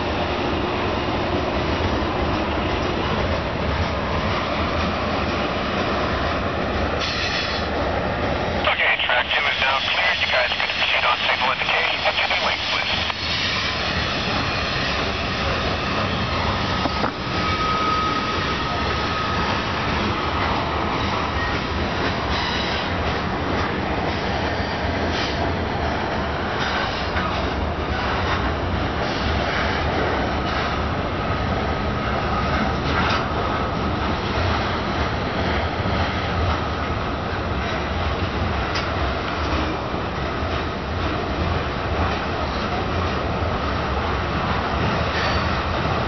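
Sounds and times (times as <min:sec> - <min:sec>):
train wheels rumbling on rails: 0:00.0 - 0:08.6, 0:12.7 - 0:46.0
rail joint clicks: 0:38.7 - 0:39.7.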